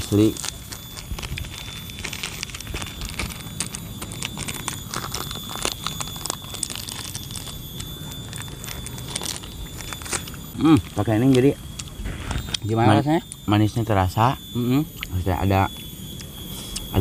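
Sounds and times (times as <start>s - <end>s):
plastic sachet crinkling: 0.0s - 14.0s
faint steady high tone: 0.0s - 17.0s.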